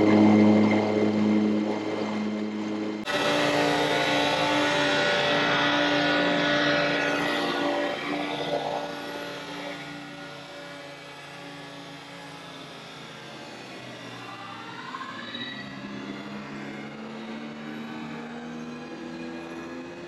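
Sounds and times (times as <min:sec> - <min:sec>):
mower engine running: 0:00.0 - 0:11.7.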